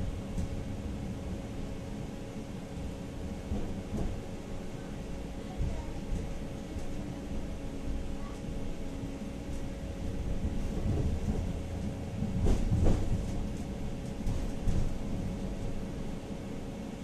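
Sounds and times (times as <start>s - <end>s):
tram wheels rumbling on rail: 0.0s - 17.0s.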